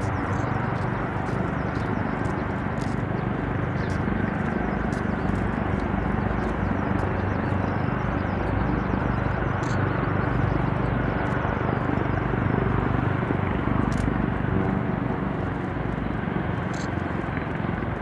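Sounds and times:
jet engines at taxi power: 0.0s - 18.0s.

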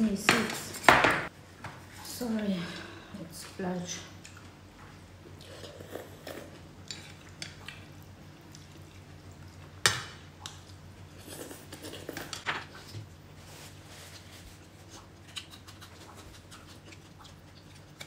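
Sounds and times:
faint steady hum: 0.0s - 18.0s
eating noises: 14.6s - 18.0s.

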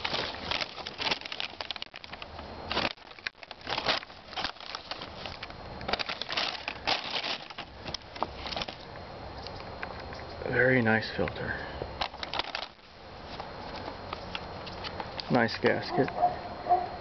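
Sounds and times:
plastic bag crinkling: 0.0s - 8.9s, 12.0s - 13.8s.

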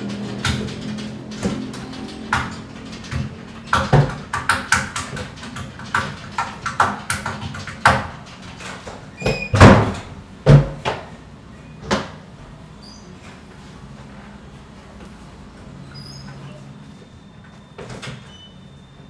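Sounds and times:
bodies bumping against walls: 0.0s - 11.1s
brief squeak: 12.8s - 13.2s, 15.8s - 16.8s, 17.6s - 19.0s.

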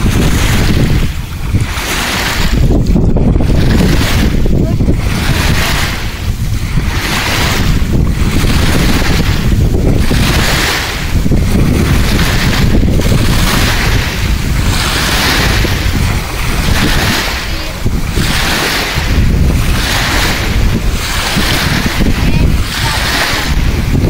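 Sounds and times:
small waves washing ashore: 0.0s - 24.0s
wind buffeting microphone: 0.0s - 24.0s.

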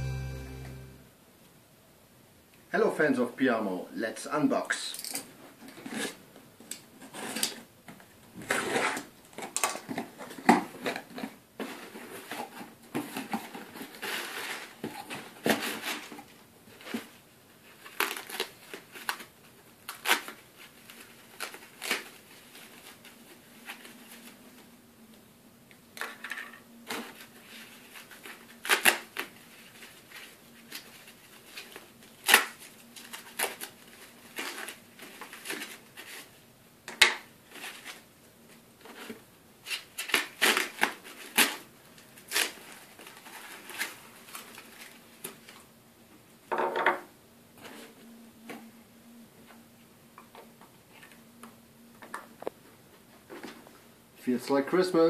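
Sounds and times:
crumpled paper rustling: 13.1s - 24.4s, 26.9s - 36.4s, 39.8s - 45.6s.

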